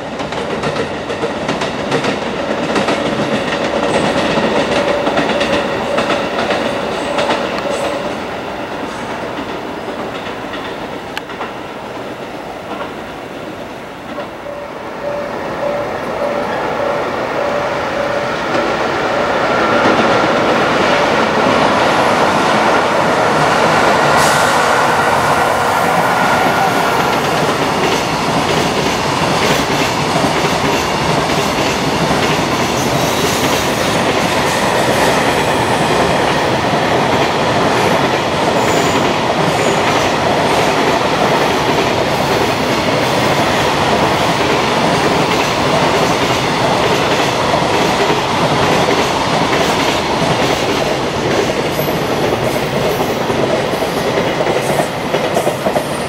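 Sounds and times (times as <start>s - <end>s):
freight train wheels clattering: 0.0s - 14.6s.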